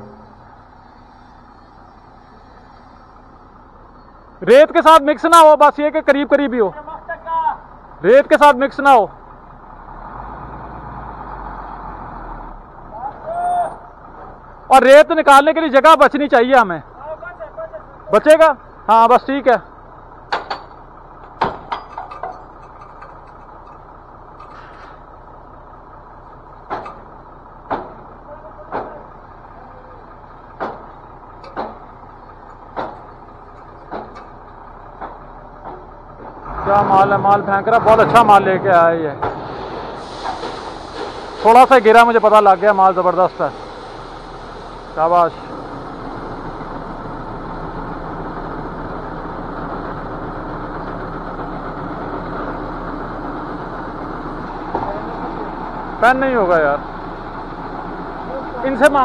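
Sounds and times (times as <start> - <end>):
heavy truck engine running: 0.0 - 59.0
sharp knocks: 20.3 - 22.8, 26.7 - 27.0, 27.7 - 28.0, 28.7 - 29.0, 30.6 - 31.8, 32.7 - 33.1, 33.9 - 34.3.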